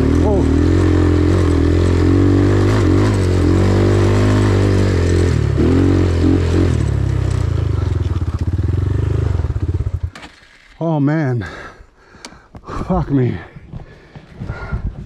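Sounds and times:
dirt bike engine revving: 0.0 - 10.8.

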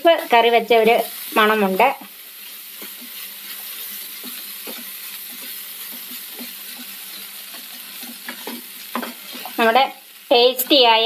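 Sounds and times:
frying pan sizzling: 0.0 - 11.0
spatula scraping and tapping pan: 2.0 - 9.7.

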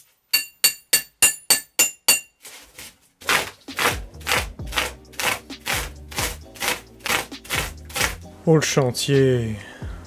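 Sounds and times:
hammer striking metal chisel: 0.0 - 2.4
chisel scraping foam: 2.4 - 8.2.

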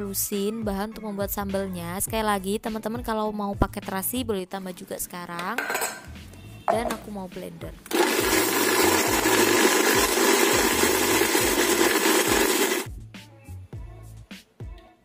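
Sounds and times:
background music: 0.0 - 15.0
electric blender whirring: 7.9 - 12.9.

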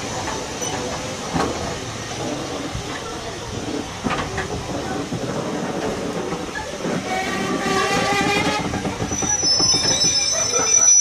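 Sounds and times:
train wheels rumbling and clicking: 0.0 - 11.0
train brakes squealing: 6.6 - 11.0.

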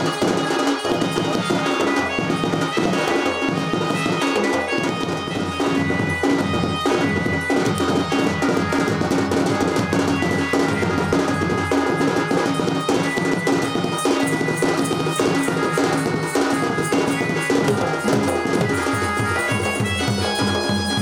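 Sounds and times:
barrel drums beating fast: 0.0 - 21.0.

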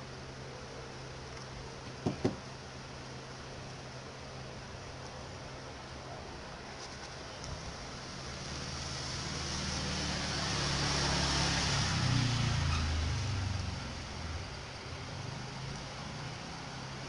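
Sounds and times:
vehicle passing by: 8.0 - 17.0.

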